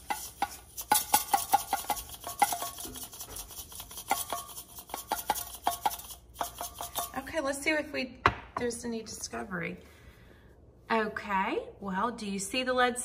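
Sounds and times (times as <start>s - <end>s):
rice rattling in shaken glass jar: 0.0s - 7.2s.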